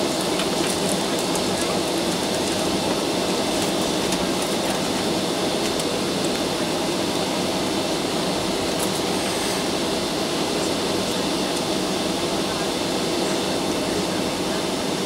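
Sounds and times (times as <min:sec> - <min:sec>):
air conditioning: 0:00.0 - 0:15.0
aircraft engines rumbling: 0:00.0 - 0:15.0.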